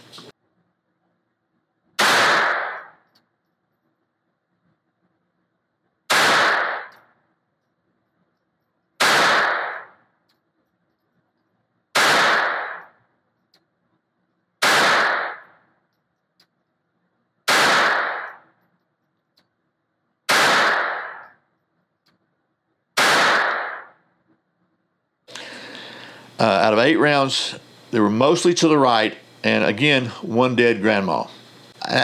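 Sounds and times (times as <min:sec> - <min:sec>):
pistol shots echoing indoors: 0:02.0 - 0:03.2, 0:06.1 - 0:07.2, 0:09.0 - 0:10.1, 0:11.9 - 0:13.0, 0:14.6 - 0:15.7, 0:17.4 - 0:18.6, 0:20.2 - 0:21.4, 0:23.0 - 0:24.2.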